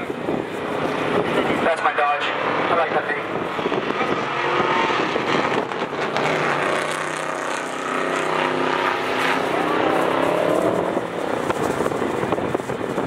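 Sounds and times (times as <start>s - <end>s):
pickup truck engines racing: 0.0s - 13.0s.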